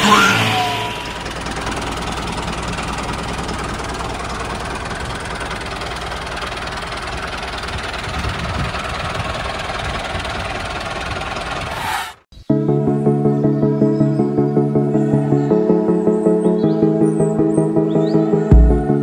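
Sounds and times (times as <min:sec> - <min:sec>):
small engine running steadily: 0:00.0 - 0:11.7.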